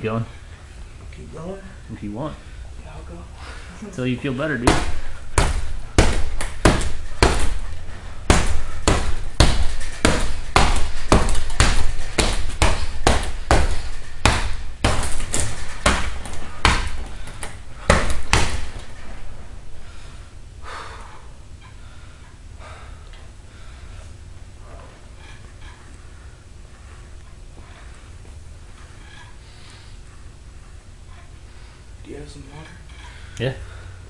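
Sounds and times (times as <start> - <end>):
fists hitting punching bag: 4.6 - 19.2.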